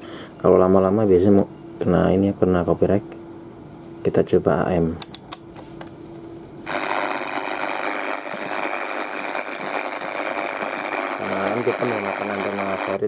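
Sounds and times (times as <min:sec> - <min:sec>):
radio static hiss: 0:06.6 - 0:13.0.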